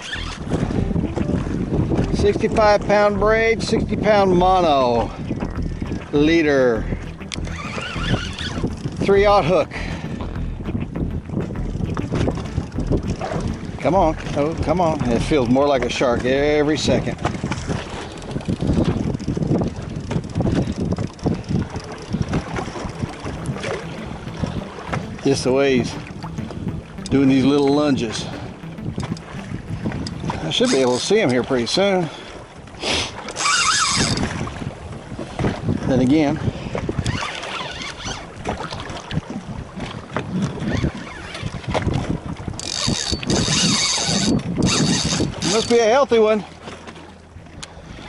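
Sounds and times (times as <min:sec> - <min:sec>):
water slapping boat hull: 0:00.0 - 0:48.0
wind buffeting microphone: 0:00.0 - 0:48.0.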